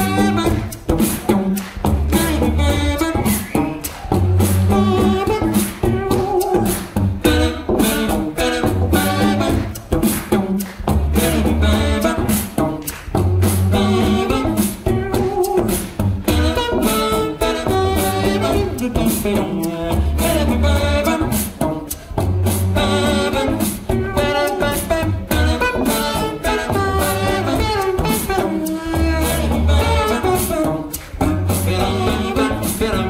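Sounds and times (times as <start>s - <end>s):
beatboxed vocal drum beats: 0.0s - 33.0s
pitched vocal lines: 14.8s - 15.8s.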